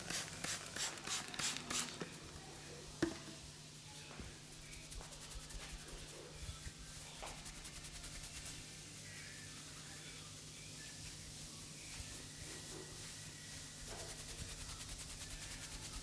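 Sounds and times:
fingertips scratching through hair: 0:04.5 - 0:08.7.

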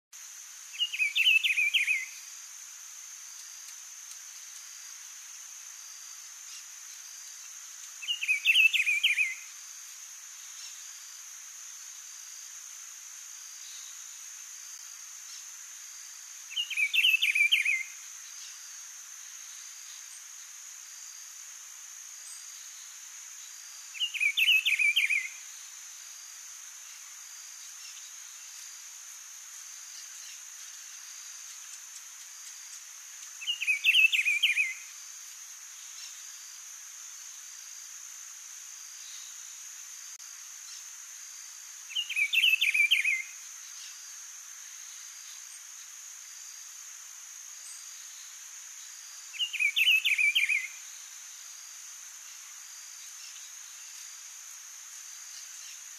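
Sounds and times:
bird singing short phrases: 0:16.5 - 0:17.8, 0:33.4 - 0:34.8, 0:41.9 - 0:43.2, 0:49.4 - 0:50.7.

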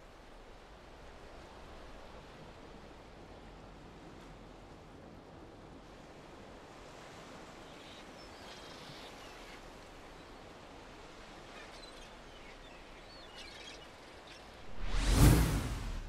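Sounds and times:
wind: 0:00.0 - 0:16.0
surf washing: 0:14.6 - 0:16.0.

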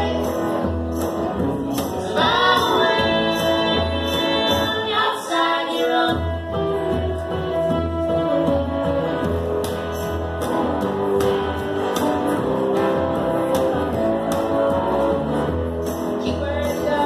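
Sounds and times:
bass line: 0:00.0 - 0:17.0
person singing: 0:01.8 - 0:07.5
guitar strumming: 0:05.8 - 0:17.0.

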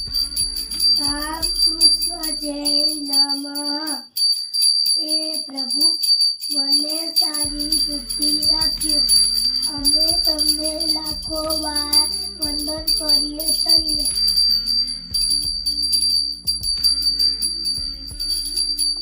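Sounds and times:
hand bell ringing rapidly: 0:00.0 - 0:19.0
person singing devotional song: 0:00.1 - 0:04.1, 0:06.5 - 0:14.5.

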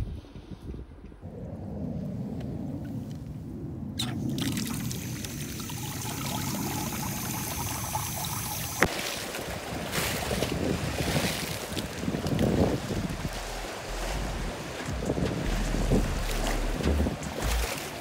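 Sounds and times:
stream flowing over stones: 0:04.3 - 0:18.0.

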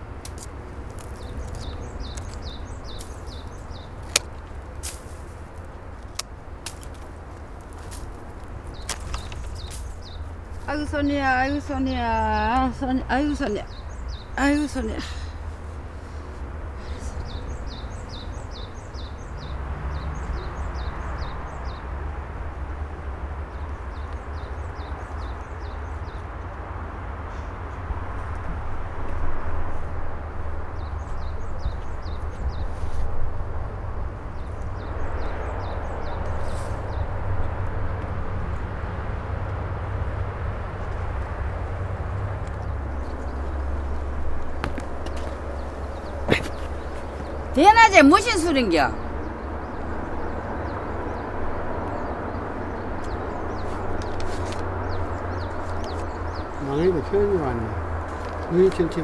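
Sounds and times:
small birds chirping: 0:00.0 - 0:28.4, 0:30.3 - 0:39.0, 0:40.8 - 0:59.0
pruning shears snipping branches: 0:00.2 - 0:10.0.

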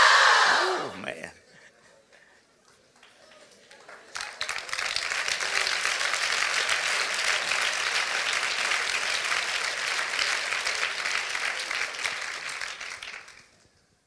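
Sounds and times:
congregation applauding: 0:03.0 - 0:13.7.

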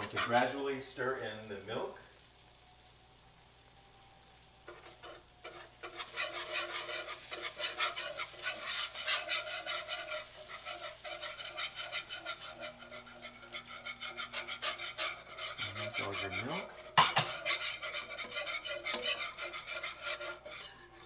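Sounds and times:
whisk scraping a pan: 0:00.0 - 0:01.9, 0:04.7 - 0:21.0.

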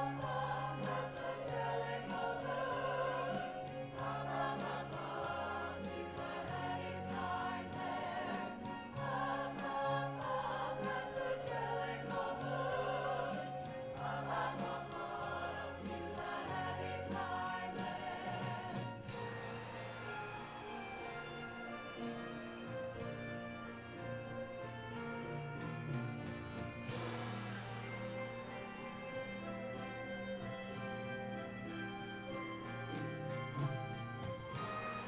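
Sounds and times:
cast singing in chorus: 0:00.0 - 0:20.7
instrumental accompaniment: 0:00.0 - 0:35.0.

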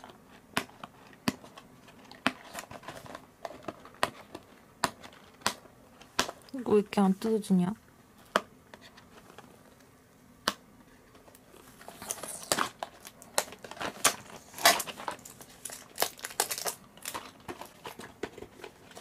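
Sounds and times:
packaging crinkling and tearing: 0:11.3 - 0:19.0.

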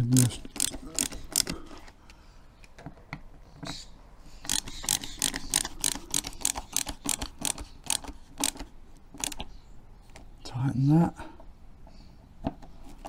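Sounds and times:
ratcheting screwdriver clicking: 0:00.1 - 0:01.5, 0:04.4 - 0:09.5.

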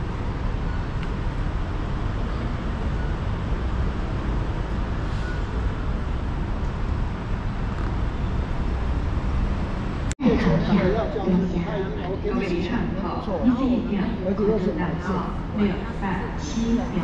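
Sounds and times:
road vehicle rumble and hiss: 0:00.0 - 0:10.2.

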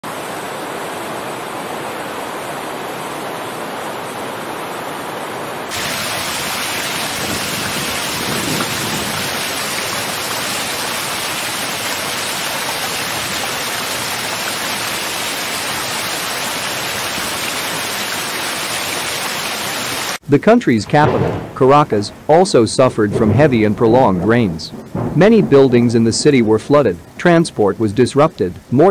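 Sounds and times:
flood water rushing: 0:00.0 - 0:28.9.

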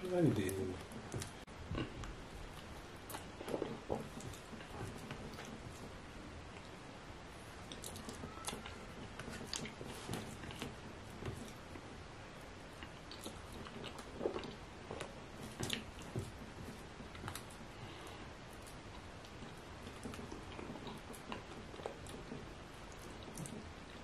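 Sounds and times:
chewing and lip smacks: 0:07.6 - 0:10.7, 0:12.7 - 0:24.0.

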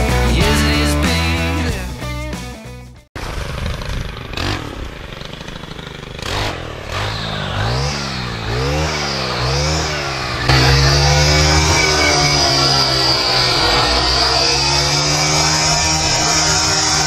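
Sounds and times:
music: 0:00.0 - 0:03.1
brushcutter engine revving: 0:03.2 - 0:17.0.

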